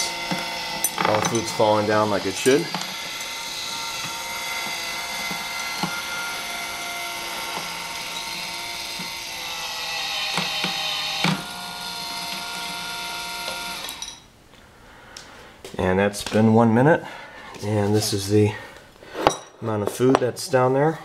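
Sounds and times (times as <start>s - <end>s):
gearmotor whining: 0.0s - 14.2s.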